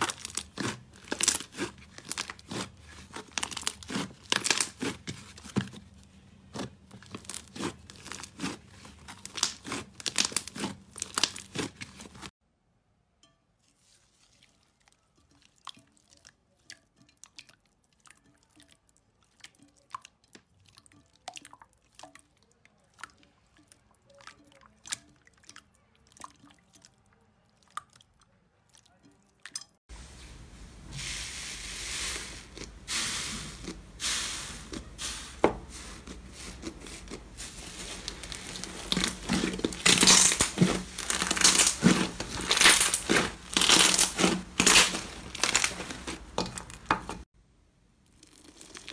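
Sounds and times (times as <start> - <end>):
slime squishing and popping: 0.0 - 5.9, 6.5 - 12.3, 36.1 - 47.2
steady hiss: 29.9 - 35.4.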